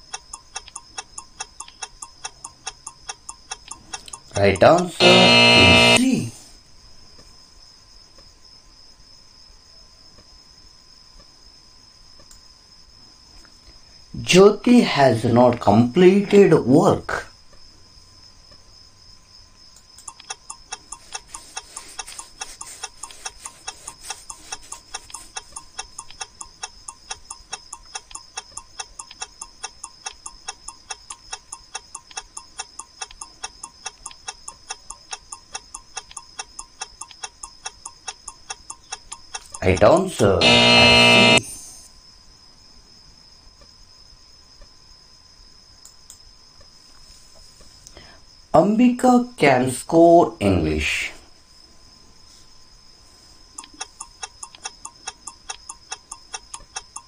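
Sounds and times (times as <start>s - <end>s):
soft clicks: 0.0s - 6.0s, 19.8s - 41.4s
cricket chirring: 0.0s - 57.0s
faint steady hiss: 0.0s - 57.0s.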